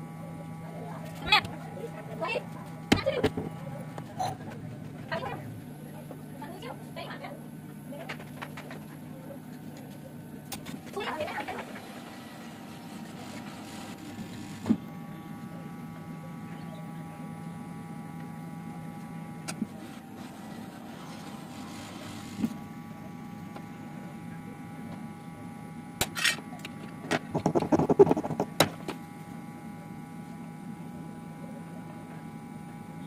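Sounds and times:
hot-air gun blower humming: 0.0 - 9.8, 10.4 - 33.0.

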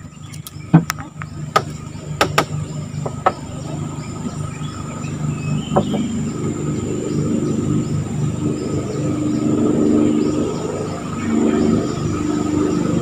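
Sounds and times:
insects buzzing: 0.0 - 13.0
small boat engine running: 0.0 - 13.0
sharp knocks: 1.5 - 3.4, 5.7 - 6.1.

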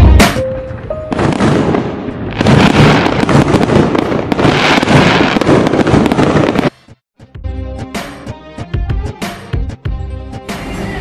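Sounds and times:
show music: 0.0 - 1.3, 7.2 - 11.0.

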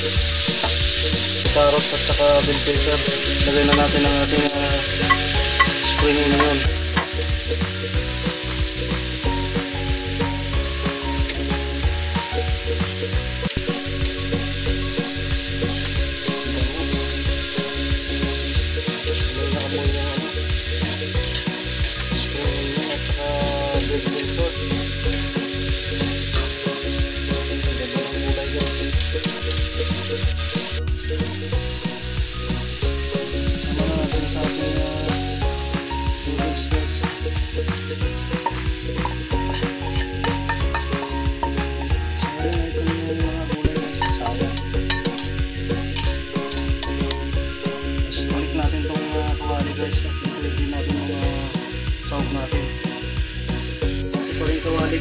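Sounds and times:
vegetables sizzling in hot oil: 0.0 - 55.0
wooden spatula striking a wok: 5.0 - 7.4, 37.5 - 42.6, 43.7 - 45.4.

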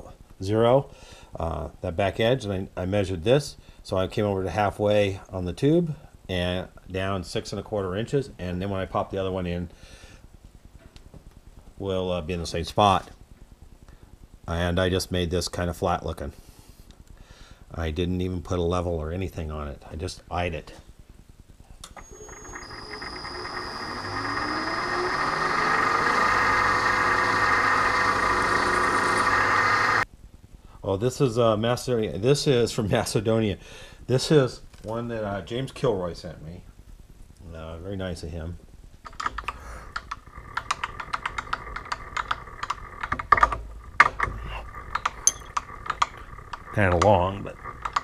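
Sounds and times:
faint machine hum: 0.0 - 48.0
drill bit grinding metal: 22.0 - 30.0
milling machine spindle whine: 22.0 - 30.0
metallic tool clicks and taps: 45.0 - 46.1.

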